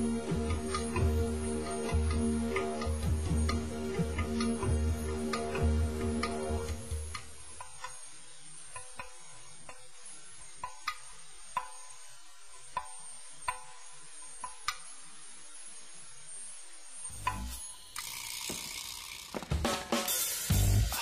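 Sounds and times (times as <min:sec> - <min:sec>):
faint steady hiss: 0:00.0 - 0:21.0
sharp light clicks: 0:08.7 - 0:14.9.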